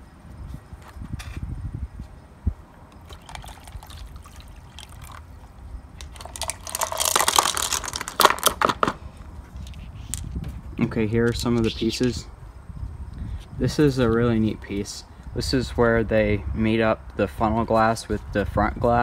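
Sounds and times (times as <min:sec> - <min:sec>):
water splashing and pouring: 0:03.0 - 0:05.4, 0:06.0 - 0:08.3
glass pieces clinking: 0:06.0 - 0:08.4.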